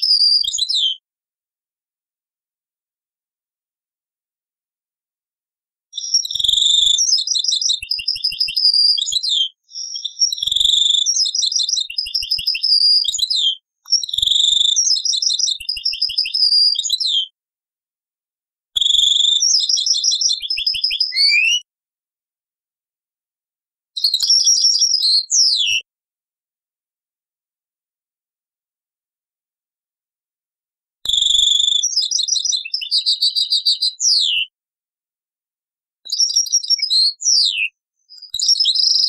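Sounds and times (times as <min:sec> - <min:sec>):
goldfinch singing: 0:18.8 - 0:21.6.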